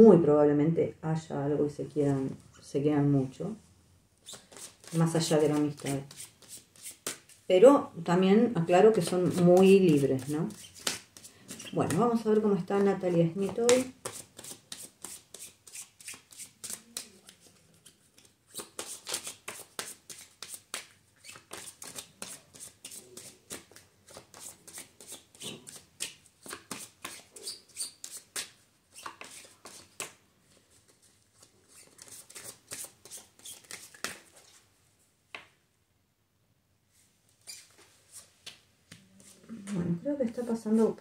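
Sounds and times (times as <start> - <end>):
cards being shuffled: 4.2 - 7.4, 9.0 - 34.6.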